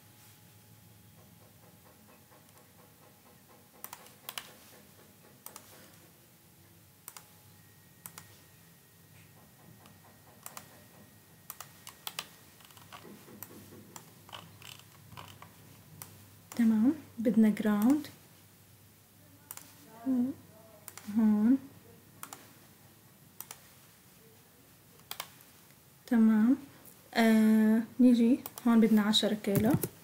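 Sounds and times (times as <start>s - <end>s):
mouse and keyboard clicks: 3.8s - 4.8s, 5.4s - 5.9s, 7.1s - 7.3s, 8.0s - 8.4s, 9.8s - 10.9s, 11.5s - 16.6s, 19.5s - 19.7s, 22.2s - 22.5s, 23.4s - 23.7s, 25.0s - 25.4s.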